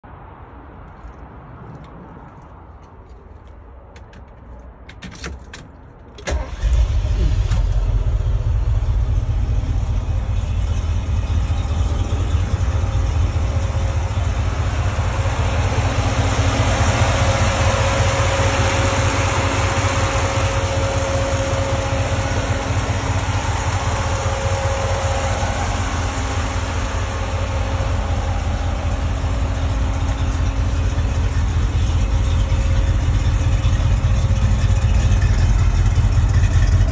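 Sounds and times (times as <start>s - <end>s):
engine cranking: 6.2s - 9.8s
engine idling: 6.2s - 36.9s.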